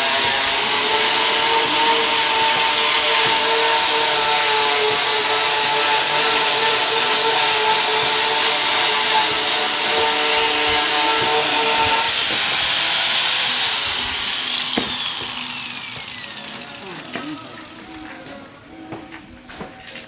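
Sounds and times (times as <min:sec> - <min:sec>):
angle grinder polishing metal: 0:00.0 - 0:20.0.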